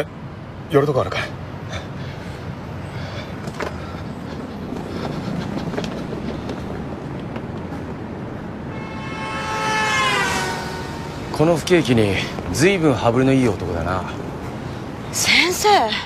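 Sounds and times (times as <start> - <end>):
vehicle rumble: 0.0 - 16.0
loud high tone: 8.7 - 11.8.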